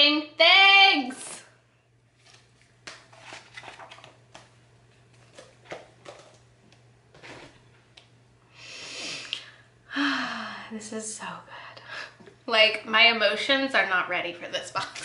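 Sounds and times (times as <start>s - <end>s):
paper and packaging rustling: 2.1s - 6.5s
person breathing: 8.5s - 10.8s, 11.5s - 12.2s.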